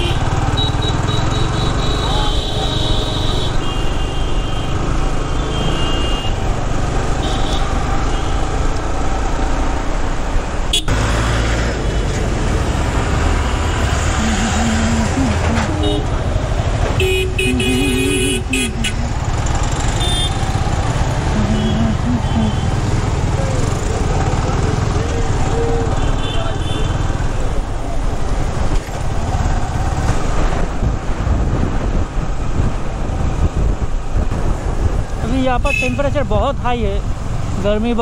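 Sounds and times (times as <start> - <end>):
vehicle horns honking: 0.0 - 4.8, 5.4 - 6.4, 10.7 - 11.0, 14.2 - 16.4, 17.0 - 19.2, 19.8 - 20.6, 21.4 - 22.8, 25.6 - 27.1, 35.7 - 36.1
motorcycle road noise: 0.0 - 38.0
wind rush: 30.1 - 35.4.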